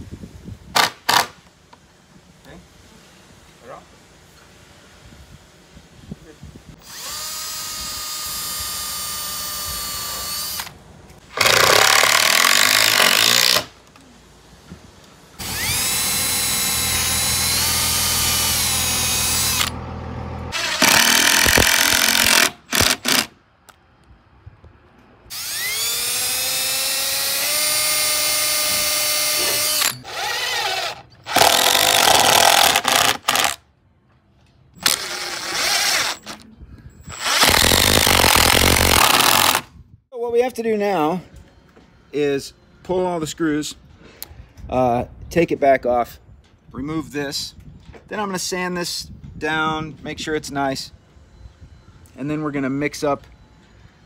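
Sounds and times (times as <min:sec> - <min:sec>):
cordless drill driving screws: 0:06.8 - 0:10.7, 0:11.4 - 0:13.7, 0:15.4 - 0:19.8, 0:20.5 - 0:23.3, 0:25.3 - 0:33.6, 0:34.8 - 0:36.4, 0:37.1 - 0:39.7.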